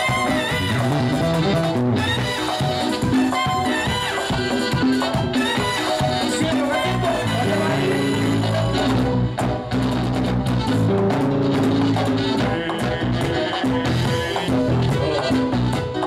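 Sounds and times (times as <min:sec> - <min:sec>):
conga and drum rhythm: 0:00.0 - 0:16.0
live band playing: 0:00.0 - 0:16.0.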